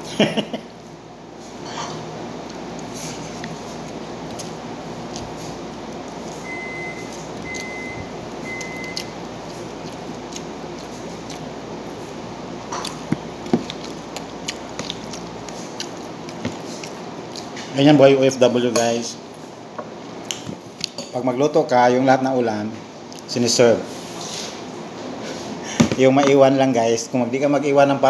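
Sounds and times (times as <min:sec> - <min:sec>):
room noise: 0:00.0 - 0:28.0
short electronic beeps: 0:06.5 - 0:09.0.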